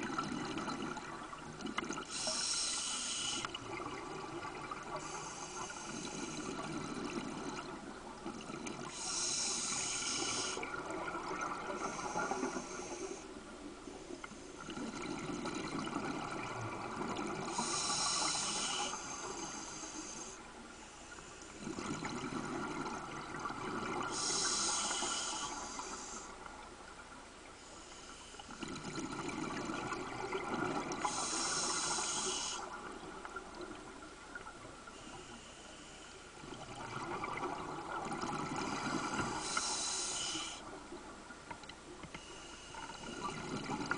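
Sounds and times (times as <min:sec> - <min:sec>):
diver breathing through regulator: 0:02.1 - 0:03.6, 0:04.9 - 0:07.0, 0:08.9 - 0:10.8, 0:11.6 - 0:13.3, 0:17.5 - 0:21.8, 0:24.1 - 0:26.4, 0:31.0 - 0:32.8, 0:38.6 - 0:40.7.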